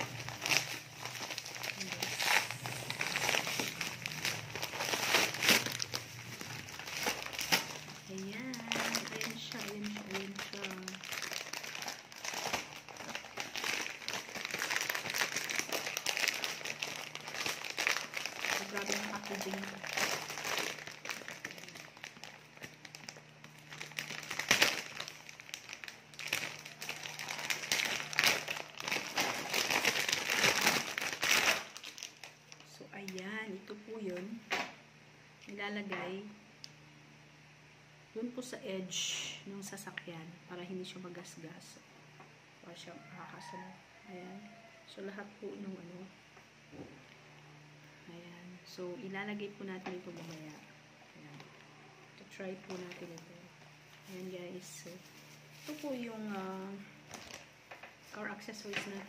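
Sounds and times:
plastic packaging crinkling: 0.0s - 33.3s, 52.4s - 59.0s.

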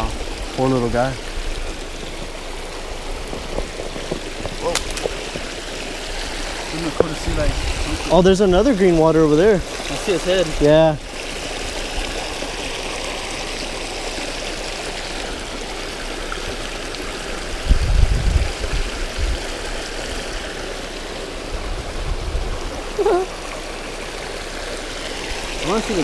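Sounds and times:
low rumbles: 0.0s - 9.9s
river water rushing over rocks: 0.0s - 26.0s.

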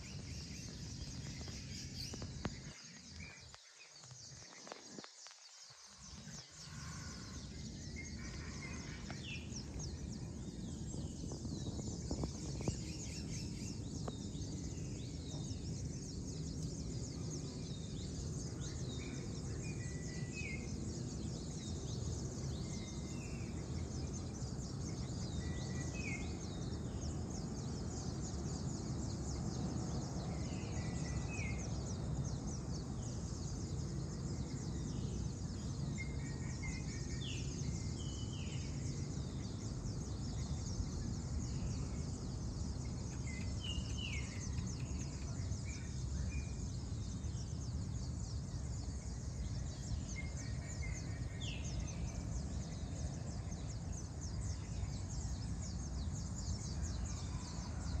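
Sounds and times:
insects chirring: 0.0s - 58.0s
low background rumble: 6.1s - 20.0s.

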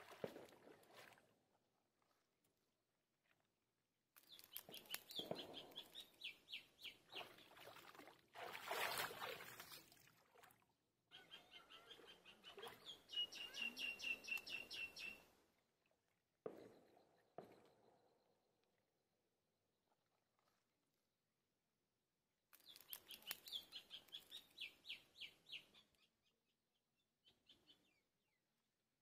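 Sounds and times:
bird chirping: 4.2s - 7.6s, 11.1s - 15.3s, 22.6s - 26.4s.

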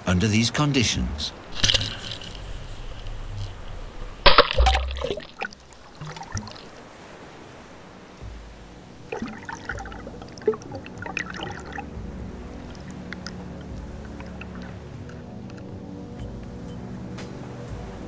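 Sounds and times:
wave splashing: 0.0s - 18.0s
muffled underwater sloshing: 1.0s - 16.8s
bubbly crackles: 1.5s - 6.9s, 9.1s - 11.9s.

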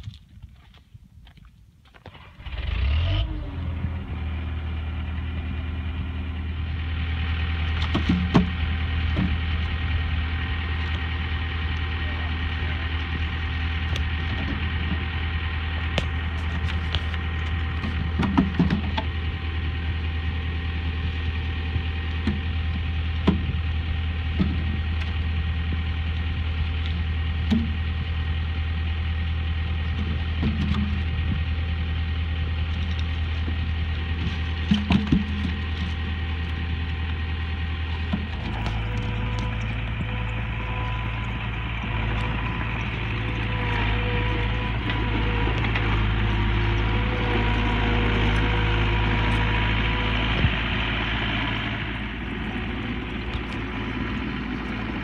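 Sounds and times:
loader engine idling: 2.1s - 55.0s
wooden knocks of logs dropped: 7.8s - 9.5s, 17.8s - 19.1s, 23.2s - 23.6s, 30.0s - 31.1s, 32.8s - 36.2s.

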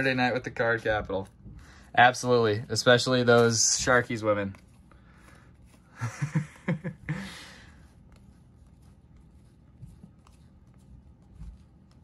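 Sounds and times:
man chuckling: 5.9s - 7.7s.

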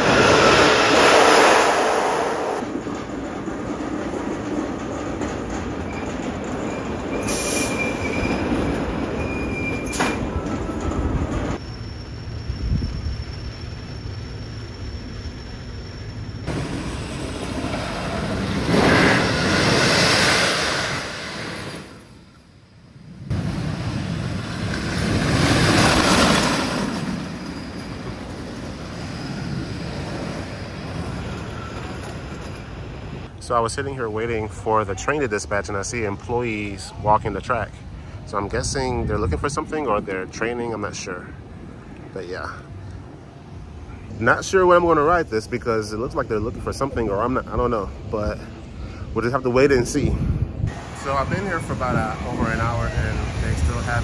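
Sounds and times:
roller coaster train rumbling: 0.0s - 54.0s
high wheel squeal: 5.8s - 17.8s, 25.5s - 33.0s.

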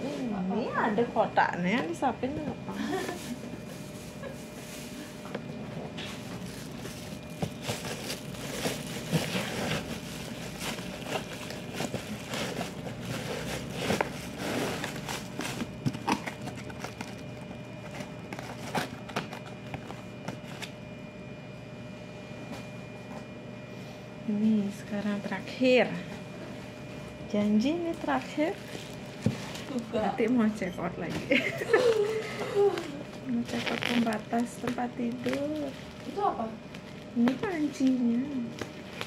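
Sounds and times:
cardboard box crackling and scraping: 6.2s - 15.8s.

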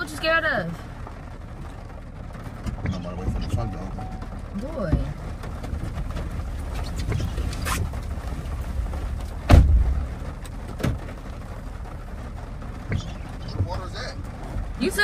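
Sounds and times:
low cabin rumble: 0.0s - 15.0s
car door slamming shut: 9.4s - 10.0s, 10.8s - 11.1s.

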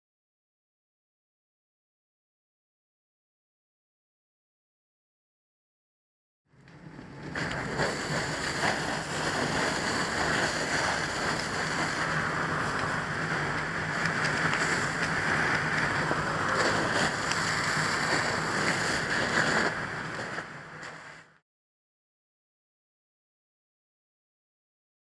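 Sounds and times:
low hum: 6.5s - 21.4s
hose spraying water: 7.3s - 21.4s.

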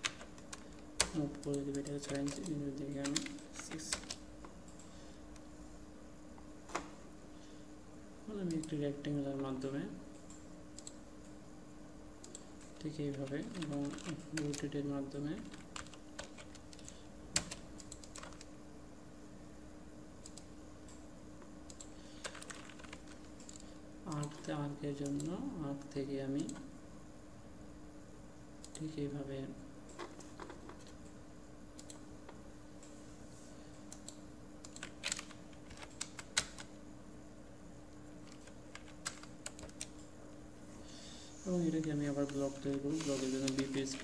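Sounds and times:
keyboard typing: 0.0s - 4.9s, 12.2s - 18.5s, 21.7s - 25.4s, 33.9s - 36.8s, 38.2s - 40.1s, 41.6s - 44.0s.

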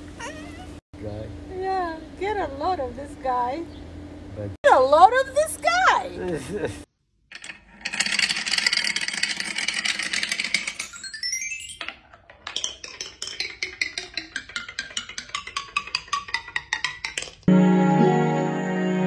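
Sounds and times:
marble striking ringing platforms: 7.3s - 17.5s
marbles clattering: 7.3s - 17.5s.

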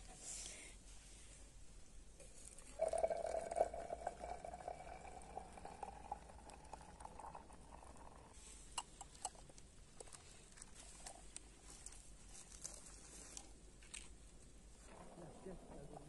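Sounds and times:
water pouring into glass cup: 2.5s - 8.4s.

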